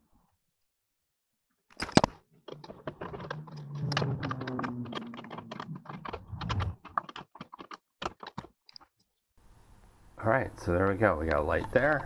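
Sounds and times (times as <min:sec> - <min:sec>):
hand tools clicking and tapping: 0:02.5 - 0:09.0.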